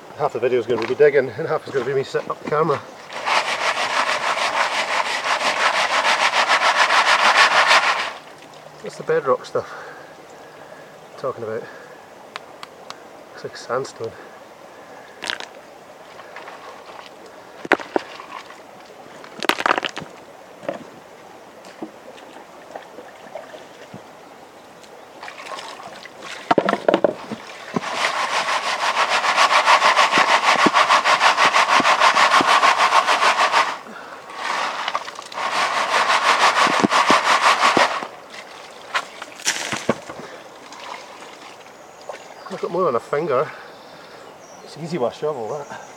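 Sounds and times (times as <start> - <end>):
gravel scraping in a pan: 0.5 - 8.3, 16.2 - 18.6, 19.2 - 20.1, 26.4 - 38.1
stones knocking: 15.2 - 15.5, 16.4 - 18.6, 19.2 - 20.9, 26.3 - 33.3, 34.4 - 38.1, 38.9 - 40.3.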